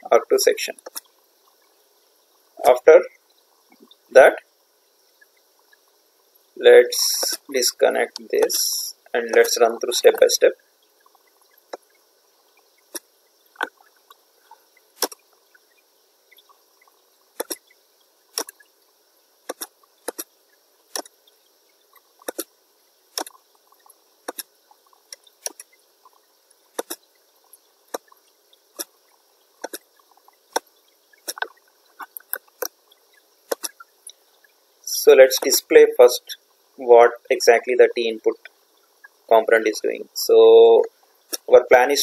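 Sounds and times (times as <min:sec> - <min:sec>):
faint steady hiss: 0:00.0 - 0:42.0
computer mouse clicking: 0:17.4 - 0:17.6, 0:19.5 - 0:20.3, 0:22.2 - 0:22.5, 0:24.3 - 0:24.5, 0:25.4 - 0:25.7, 0:26.8 - 0:27.0, 0:29.6 - 0:29.8, 0:33.5 - 0:33.8.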